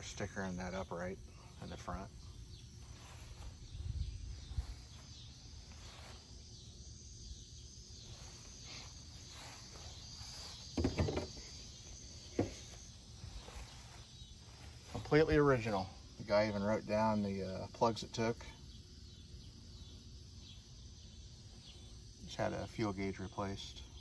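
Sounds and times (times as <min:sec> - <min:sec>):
insects chirping: 0:00.0 - 0:24.0
low rumble on microphone: 0:01.2 - 0:06.3.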